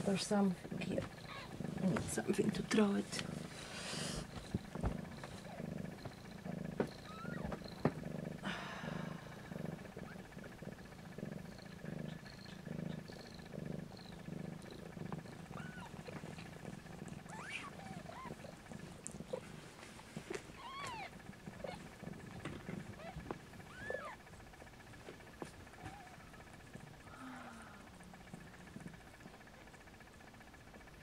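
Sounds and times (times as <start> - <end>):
cat purring: 0.0 - 31.0
kittens squeaking mews: 1.2 - 1.6, 6.8 - 7.9, 15.2 - 19.5, 20.5 - 24.2, 25.8 - 26.4.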